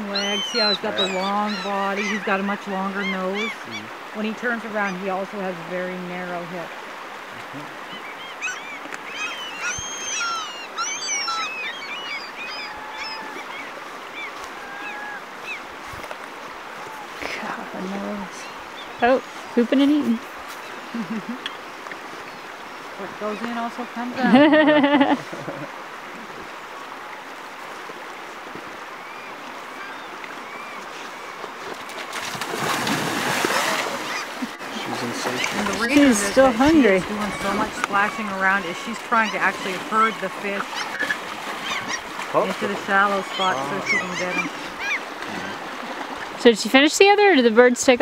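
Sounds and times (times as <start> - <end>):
gulls crying: 0.0 - 6.4, 7.4 - 15.8, 32.5 - 48.0
shallow stream rushing: 0.0 - 48.0
bear splashing through water: 30.9 - 46.5.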